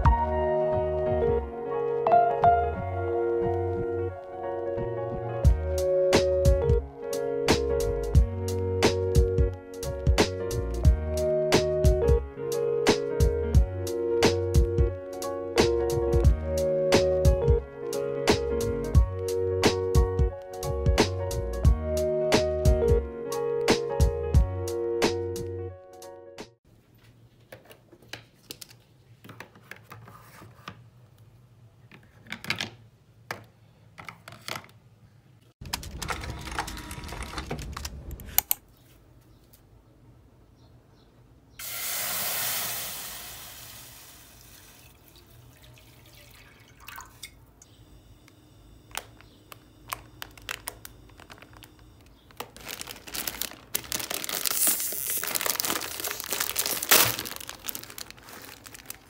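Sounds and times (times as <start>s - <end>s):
plastic packet crinkling and tearing: 35.6s - 38.1s, 48.9s - 59.0s
water pouring into frying pan: 41.6s - 47.3s.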